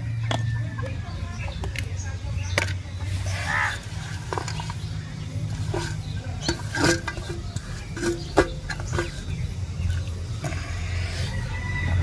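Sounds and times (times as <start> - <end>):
metal plate clanking on stone: 5.5 - 10.0.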